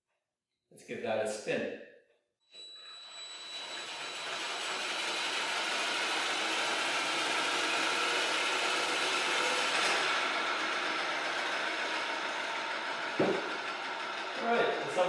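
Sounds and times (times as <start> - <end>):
drill whirring: 2.5 - 14.4.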